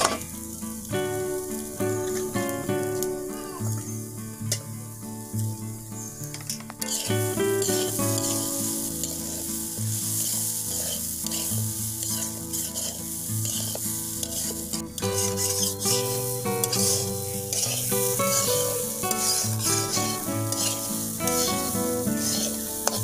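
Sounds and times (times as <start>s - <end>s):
background music with sustained notes: 0.0s - 23.0s
rice sizzling in an iron pan: 0.0s - 23.0s
metal spatula scraping a pan: 6.5s - 23.0s.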